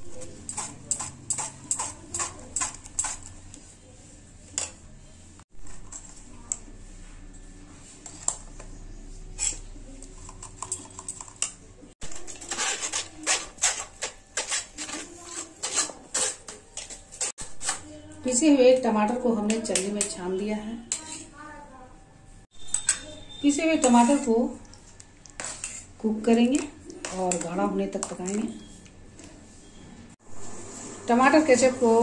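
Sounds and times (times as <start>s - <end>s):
metal spoon scraping a mesh strainer: 0.1s - 3.4s, 9.2s - 18.0s, 20.8s - 21.4s, 22.6s - 28.8s.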